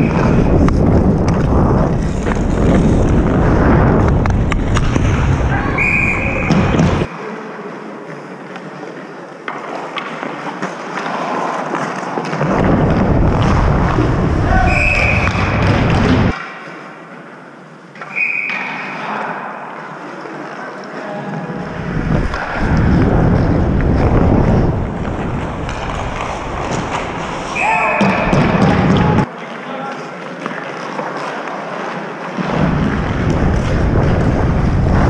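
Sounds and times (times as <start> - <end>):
wind buffeting microphone: 0.0 - 7.1, 21.6 - 27.5, 32.6 - 35.0.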